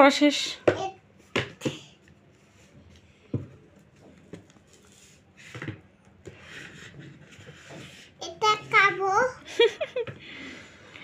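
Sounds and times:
book pages turning: 0:03.7 - 0:05.3.

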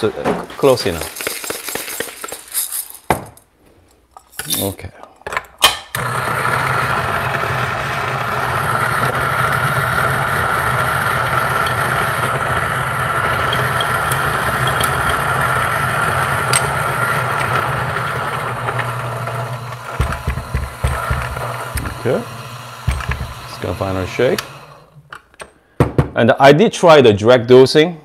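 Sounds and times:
coffee grinder running: 0:05.9 - 0:25.0.

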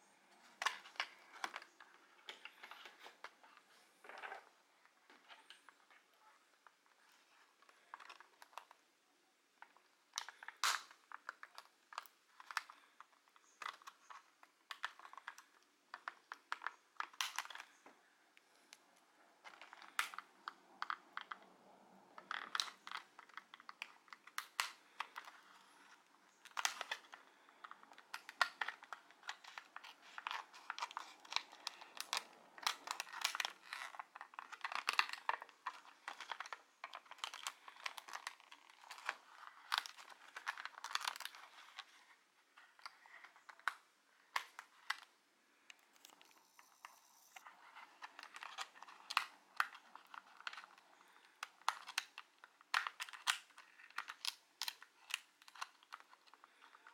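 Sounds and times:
plastic packaging crinkling: 0:22.2 - 0:56.9.

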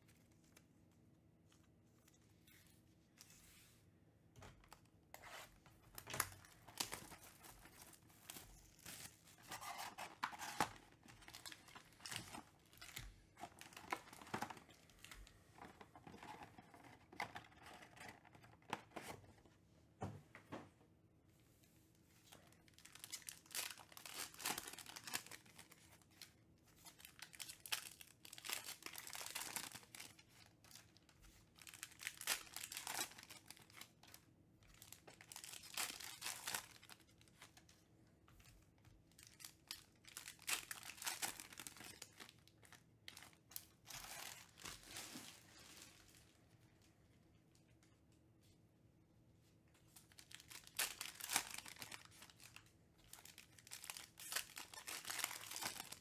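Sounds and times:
foil wrappers crinkling and tearing: 0:22.4 - 0:37.5, 0:39.2 - 0:46.3, 0:50.0 - 0:56.0.

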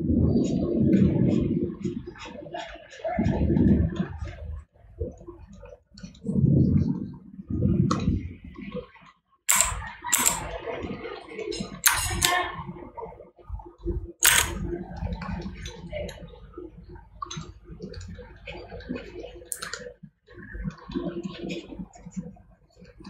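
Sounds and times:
mouse and keyboard clicking: 0:09.5 - 0:10.5, 0:11.8 - 0:12.4, 0:14.2 - 0:14.6, 0:19.5 - 0:19.8.

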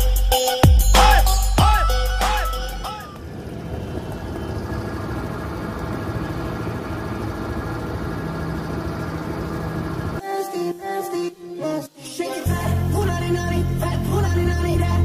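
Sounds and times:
scooter engine running: 0:01.6 - 0:10.2.

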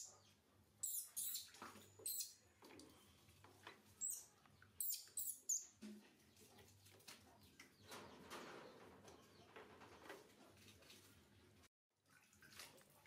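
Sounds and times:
baby macaque squeaking: 0:04.8 - 0:05.6.

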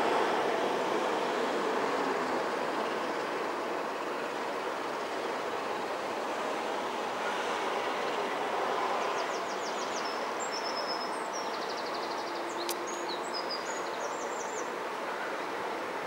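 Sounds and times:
songbird trills and chirps: 0:09.2 - 0:14.7
sharp click: 0:12.6 - 0:12.8.

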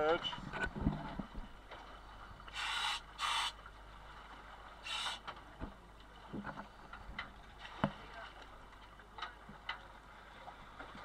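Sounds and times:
diving regulator air hissing: 0:02.5 - 0:03.6, 0:04.8 - 0:05.2.

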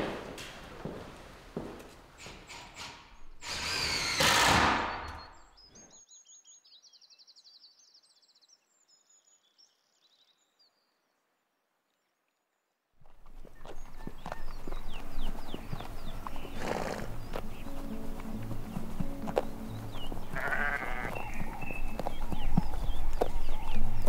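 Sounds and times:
high bird chirps and trill: 0:13.5 - 0:24.0.

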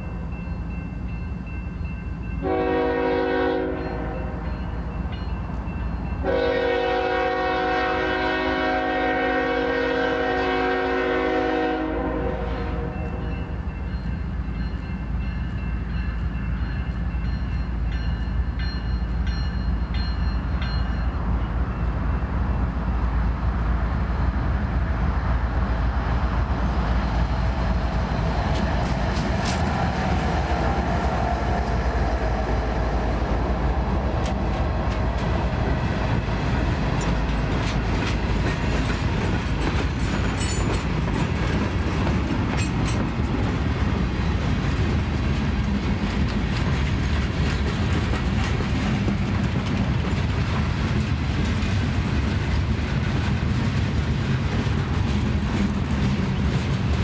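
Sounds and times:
clickety-clack of train wheels: 0:00.0 - 0:57.0
diesel locomotive passing: 0:00.0 - 0:57.0
freight cars rumbling past: 0:19.5 - 0:57.0.

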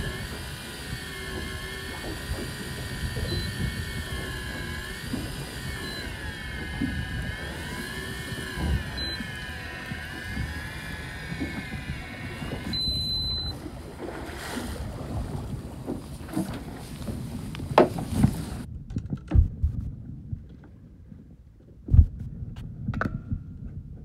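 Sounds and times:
water noise: 0:00.0 - 0:18.7
wind: 0:00.0 - 0:24.0
high beep: 0:09.0 - 0:09.2, 0:12.7 - 0:13.6.

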